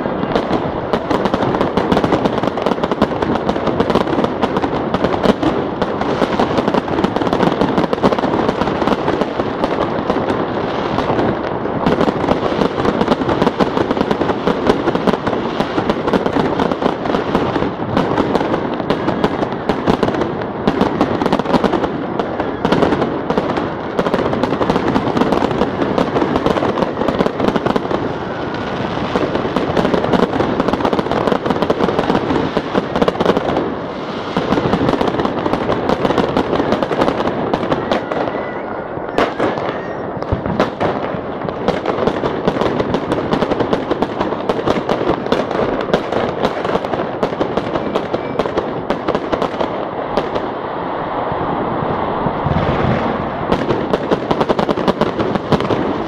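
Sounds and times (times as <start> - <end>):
fireworks crackling and banging: 0.0 - 56.0.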